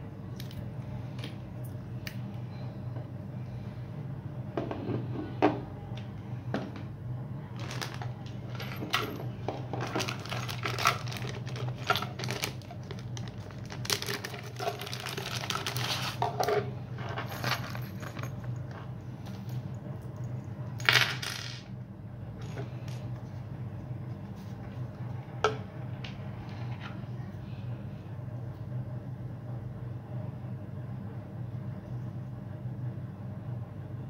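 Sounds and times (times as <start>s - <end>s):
steady low hum: 0.0s - 34.0s
plastic bag crinkling: 7.6s - 8.7s, 9.8s - 16.3s.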